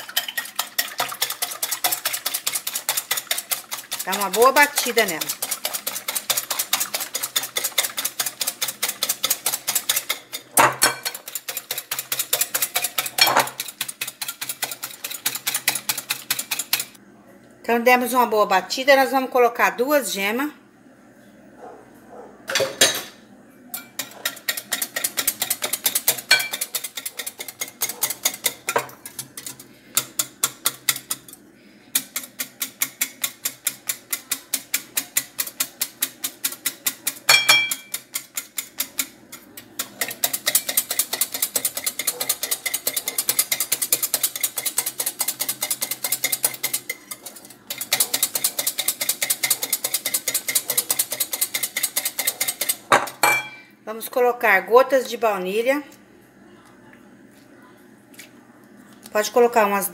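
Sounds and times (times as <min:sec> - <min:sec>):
whisk clicking against glass bowl: 0:00.0 - 0:17.0, 0:23.8 - 0:53.3.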